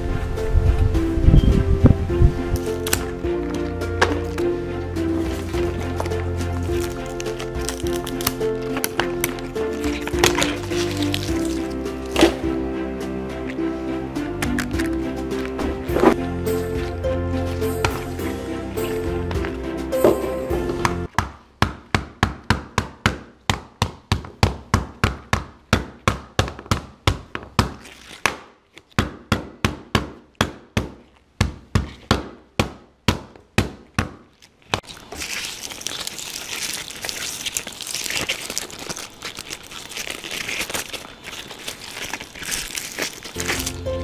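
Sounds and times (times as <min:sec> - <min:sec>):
crushed stalks rustling and crackling: 0:02.2 - 0:20.3, 0:34.3 - 0:44.0.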